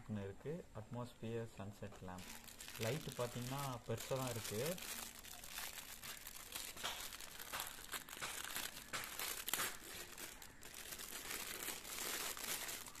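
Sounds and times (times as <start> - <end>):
plastic bag crinkling: 2.1 - 13.0.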